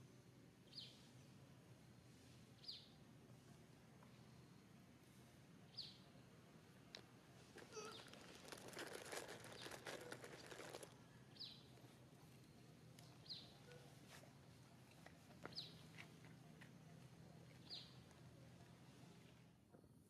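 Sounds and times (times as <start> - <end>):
rustling and small clicks: 6.9 - 11.0.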